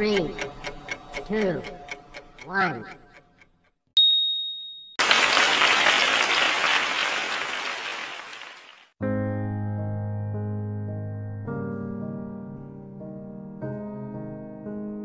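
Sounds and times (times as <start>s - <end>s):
high ding: 4.0s - 5.0s
recorded applause: 5.0s - 9.0s
soft piano music: 9.0s - 15.0s.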